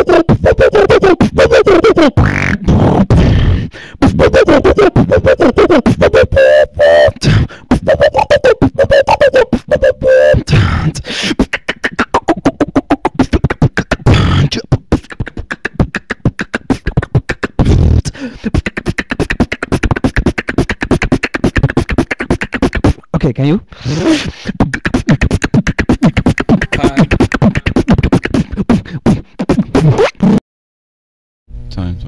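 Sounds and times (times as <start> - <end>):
hummed pitched notes: 0.0 - 18.0
beatboxing clicks and snare hits: 0.0 - 23.1, 23.9 - 30.4.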